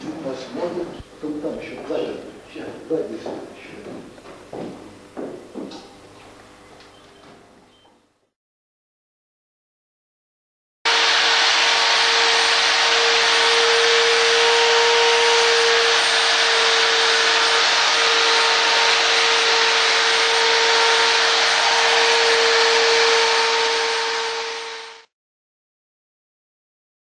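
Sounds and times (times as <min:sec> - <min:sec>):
angle grinder grinding: 0:10.9 - 0:25.1.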